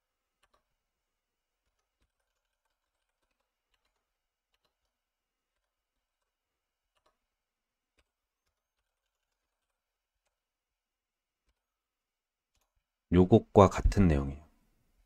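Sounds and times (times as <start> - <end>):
faint keyboard keystrokes: 0.4 - 0.8, 1.6 - 7.3.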